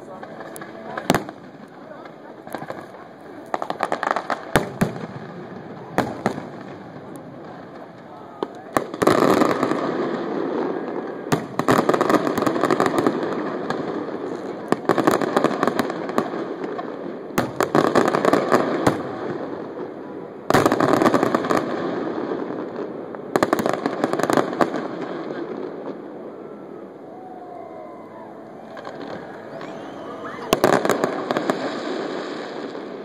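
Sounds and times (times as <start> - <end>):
firework crackling hiss: 27.1 - 33.0.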